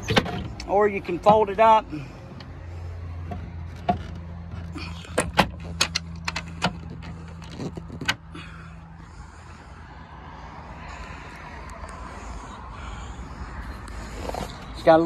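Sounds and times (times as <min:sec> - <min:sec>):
sharp clicks and knocks: 0:03.2 - 0:08.2.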